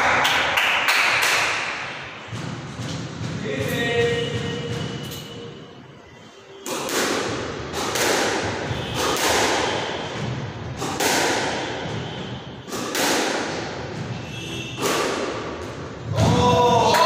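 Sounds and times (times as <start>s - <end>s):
squash ball hitting rackets: 0.0s - 5.4s, 6.6s - 17.0s
ball slapping front wall: 6.7s - 16.4s.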